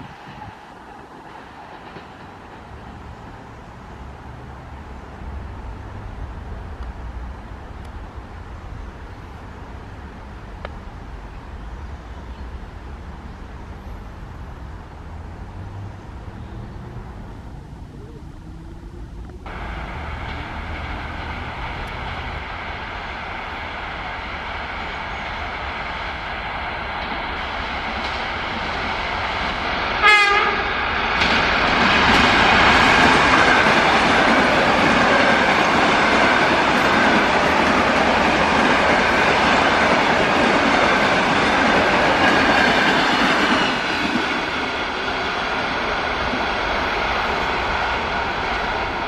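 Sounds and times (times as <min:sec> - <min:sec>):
train rail and wheel noise: 0:00.0 - 0:49.0
train horn blast: 0:30.0 - 0:30.7.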